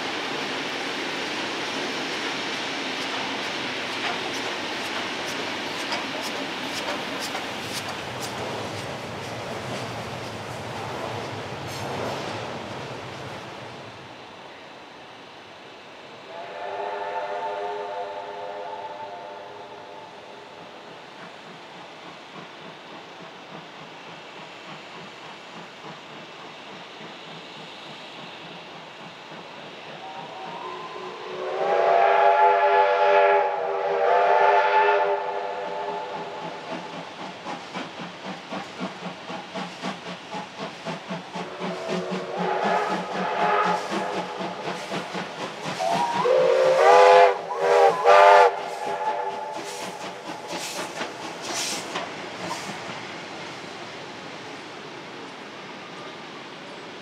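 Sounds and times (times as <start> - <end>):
steam locomotive exhaust beats: 0.0 - 14.5, 16.2 - 57.0
steam whistle blasts: 16.3 - 20.0, 30.0 - 36.4, 41.4 - 44.4, 45.8 - 50.0.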